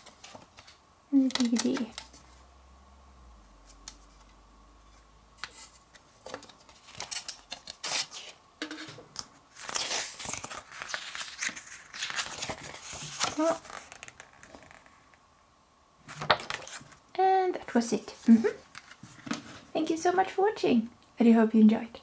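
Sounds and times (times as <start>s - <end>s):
packaging clicks: 1.2s - 2.1s
packaging rustling: 5.4s - 14.9s, 16.1s - 17.0s.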